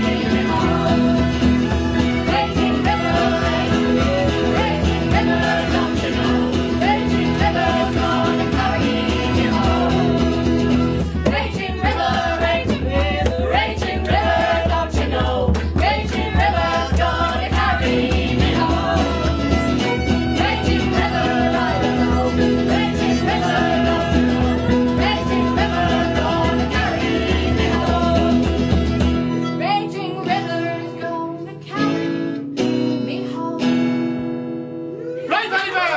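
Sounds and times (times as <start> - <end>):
fiddle: 0.0 - 31.9
voices singing: 0.0 - 31.9, 35.0 - 35.9
bass: 0.0 - 35.4
guitars: 0.0 - 35.9.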